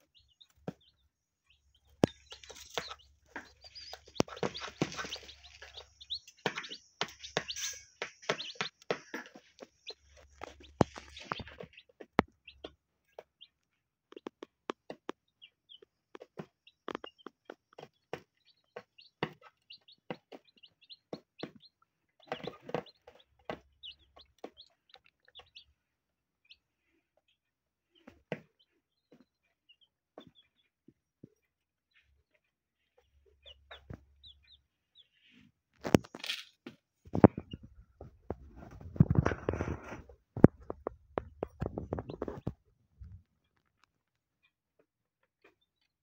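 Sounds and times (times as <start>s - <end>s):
chicks peeping: 0.0s - 36.2s, 37.0s - 45.9s
hen pecking on plastic lid: 2.0s - 12.7s.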